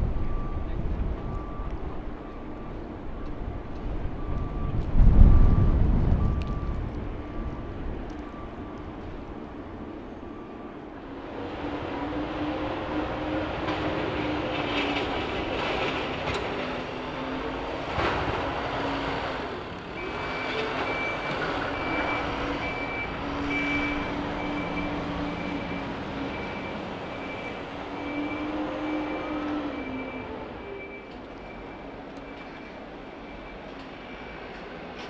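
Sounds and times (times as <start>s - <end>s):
reversing alarm beeping: 0.0s - 12.7s, 20.0s - 35.0s
diesel engine droning: 0.0s - 35.0s.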